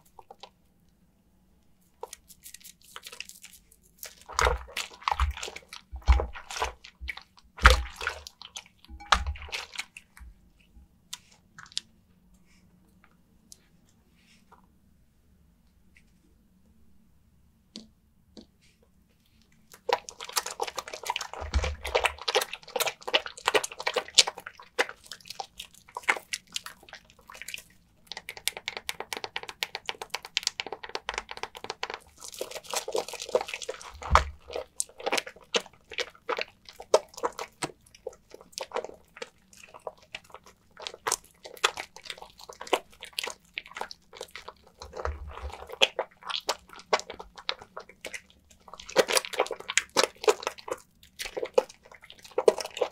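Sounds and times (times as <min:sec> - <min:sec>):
soap lather squelching: 0:01.8 - 0:11.9, 0:19.6 - 0:52.9.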